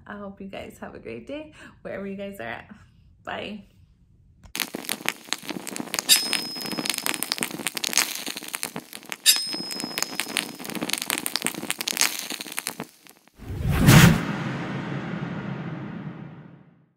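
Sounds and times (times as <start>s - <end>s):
electric crackling and sparking: 4.6s - 14.2s
thin high ringing tone: 5.0s - 12.9s
low swell: 13.4s - 16.8s.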